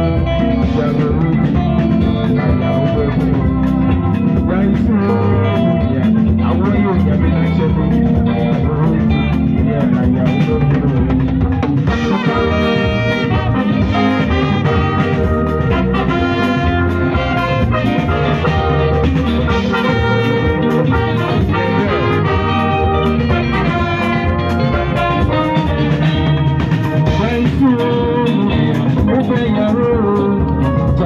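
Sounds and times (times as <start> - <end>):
bass guitar: 0.0 - 31.0
drums: 0.0 - 31.0
horn section playing: 11.9 - 28.8.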